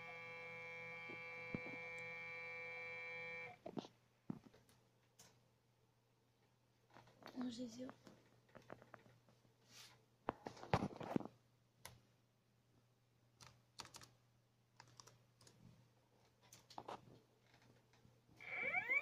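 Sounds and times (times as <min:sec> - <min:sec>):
laptop keyboard typing: 0:13.4 - 0:15.6.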